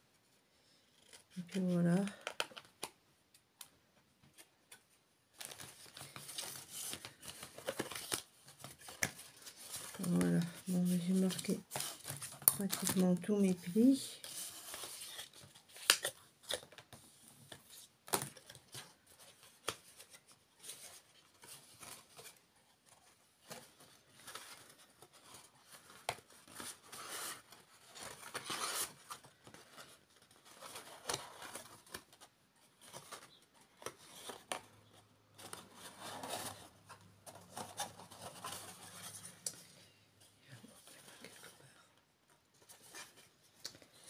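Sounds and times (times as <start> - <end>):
stiff card rustling: 5.4 - 16.8.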